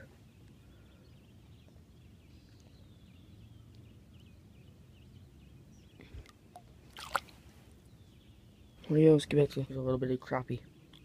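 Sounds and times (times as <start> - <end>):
faint bird chirps: 0.0 - 6.8.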